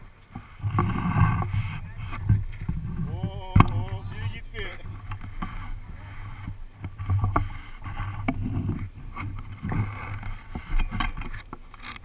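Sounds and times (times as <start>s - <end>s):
low rumble: 0.0s - 7.2s.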